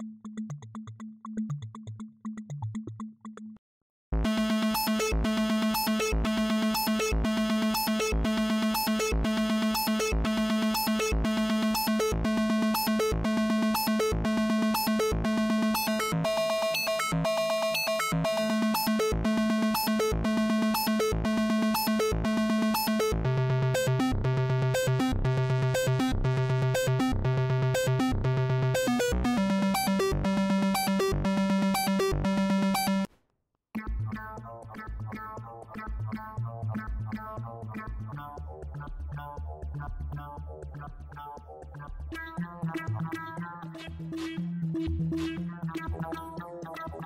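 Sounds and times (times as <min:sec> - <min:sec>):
fast synth arpeggio: 0:04.2 - 0:33.1
pulsing synth bass note: 0:18.2 - 0:33.1.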